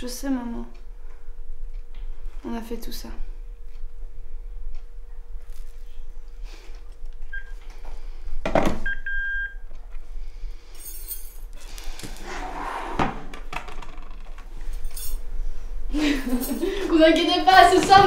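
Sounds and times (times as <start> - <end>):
phone handset beeping: 8.8 - 9.6.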